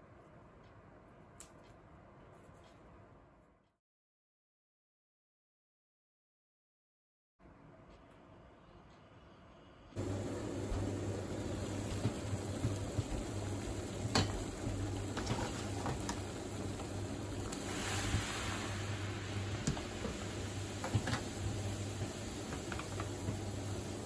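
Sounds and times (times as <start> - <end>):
foaming water hissing: 10.0 - 24.0
water boiling and bubbling: 10.0 - 24.0.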